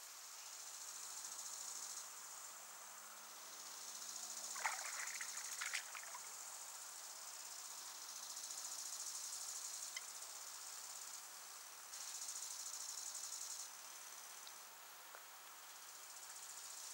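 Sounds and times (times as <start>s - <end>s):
insects chirring: 0.5s - 14.7s
water splashing: 4.5s - 6.3s.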